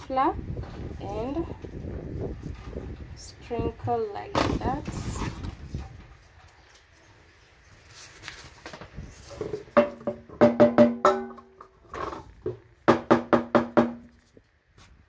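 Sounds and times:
metal cake tin knocking: 9.8s - 11.5s.

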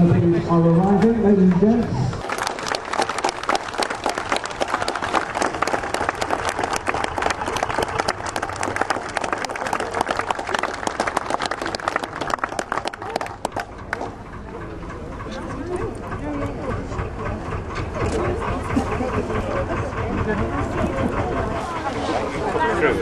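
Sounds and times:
crowd applauding: 2.2s - 14.4s.

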